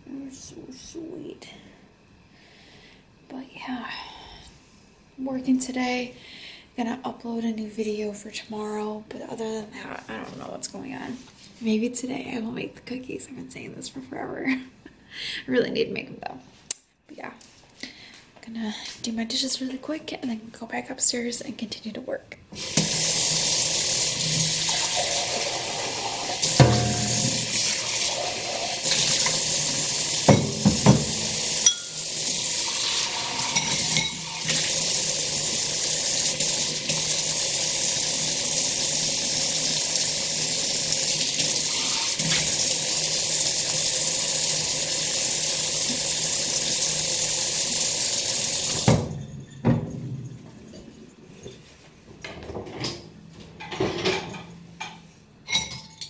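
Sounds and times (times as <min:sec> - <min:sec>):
faucet running into sink: 0:22.6 - 0:49.1
dishes clattering: 0:26.4 - 0:27.6, 0:30.3 - 0:32.1, 0:33.5 - 0:34.3, 0:53.6 - 0:56.0.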